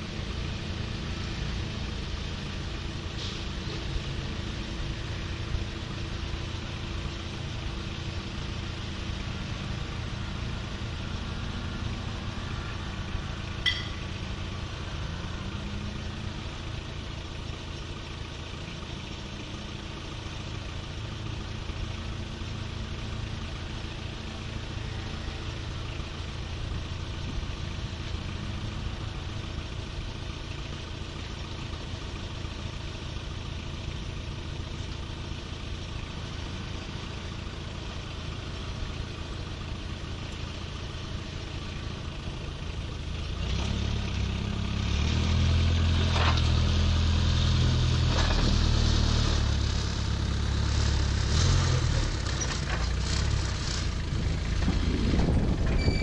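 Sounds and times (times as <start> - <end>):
vehicle engine idling: 0.0 - 56.0.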